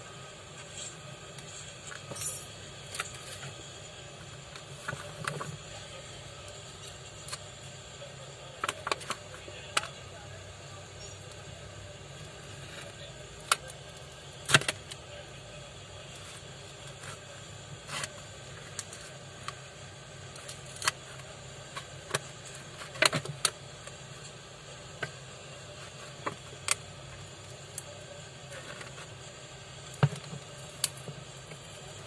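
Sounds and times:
steady background noise: 0:00.0 - 0:32.0.

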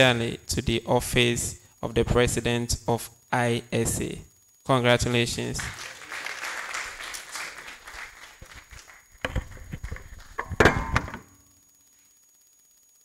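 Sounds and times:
applause: 0:05.6 - 0:10.4
thumps and knocks: 0:09.2 - 0:11.2.

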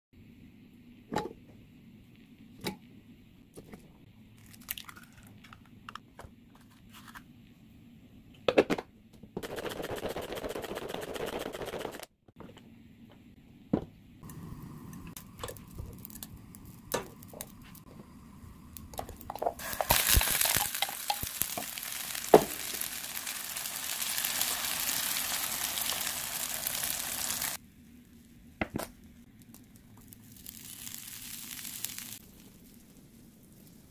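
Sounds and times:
batter sizzling in a frying pan: 0:19.4 - 0:27.6, 0:30.0 - 0:33.9.

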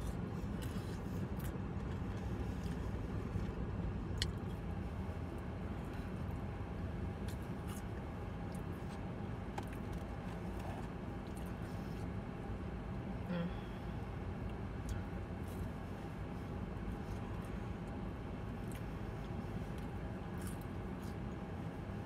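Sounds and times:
clicks and rustles of eating: 0:00.0 - 0:04.7, 0:07.2 - 0:12.1, 0:14.4 - 0:22.0.

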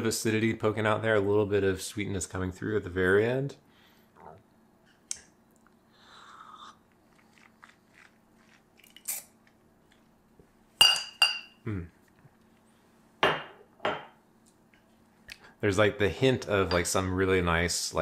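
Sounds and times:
ceramic cups clinking: 0:10.8 - 0:11.6, 0:16.6 - 0:17.0.

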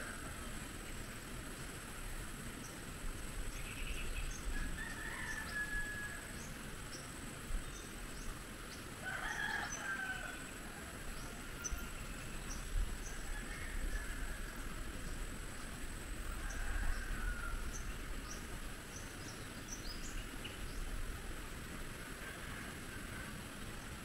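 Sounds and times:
rooster crowing: 0:04.5 - 0:06.5, 0:09.0 - 0:12.2, 0:13.0 - 0:14.8, 0:16.2 - 0:18.4, 0:22.2 - 0:23.5.

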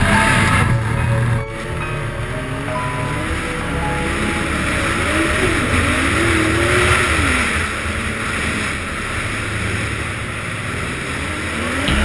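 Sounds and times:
snowmobile engine under throttle: 0:00.0 - 0:12.0
steady rushing noise: 0:00.0 - 0:12.0.

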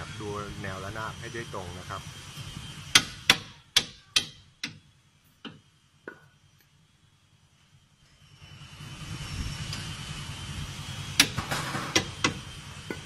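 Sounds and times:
hammer striking metal: 0:02.9 - 0:04.8.

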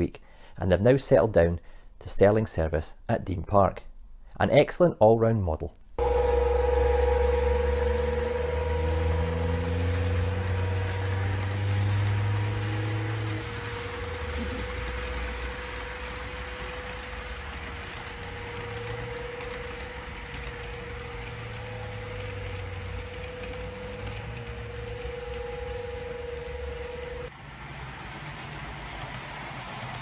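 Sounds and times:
steady whine: 0:06.0 - 0:27.3
model train wheels rumbling on rail: 0:06.0 - 0:30.0.

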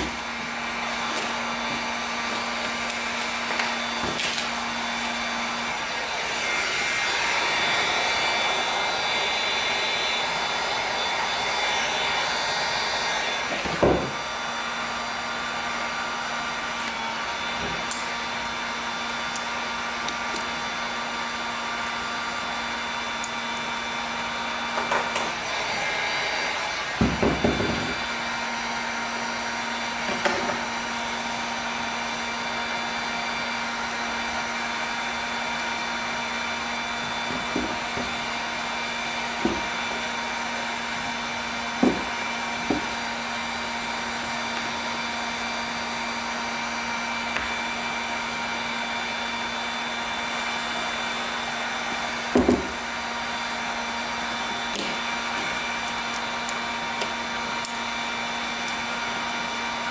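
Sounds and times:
heat gun blowing hum: 0:00.0 - 0:59.9
tools knocking: 0:41.8 - 0:42.9, 0:52.3 - 0:52.8.

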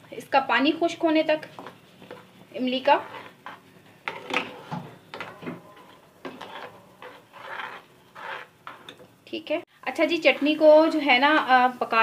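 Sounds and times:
utensil scraping thick paste in pan: 0:01.3 - 0:09.1, 0:10.2 - 0:11.0.

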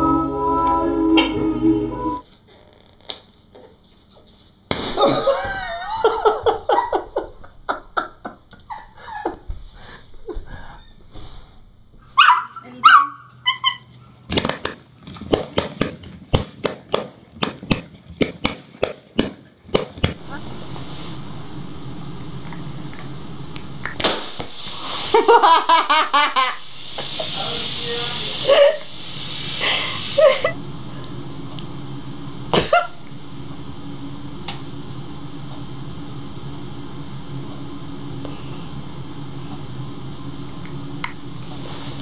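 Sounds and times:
low room hum: 0:00.0 - 0:42.0
balloons popping: 0:14.3 - 0:20.2
person stifling laughs: 0:32.6 - 0:33.0.

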